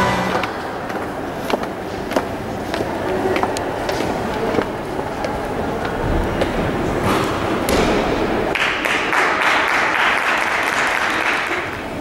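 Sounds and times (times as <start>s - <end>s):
audience clapping: 8.4s - 12.0s.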